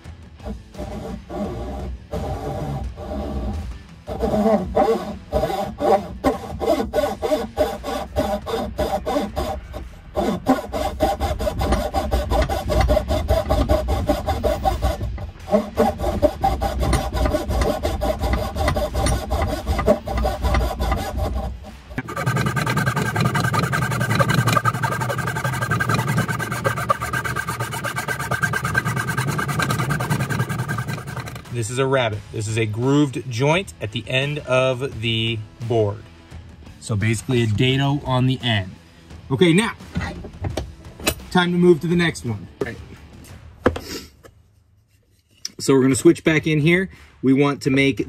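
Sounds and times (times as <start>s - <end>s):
hand saw cutting wood: 0.0s - 31.8s.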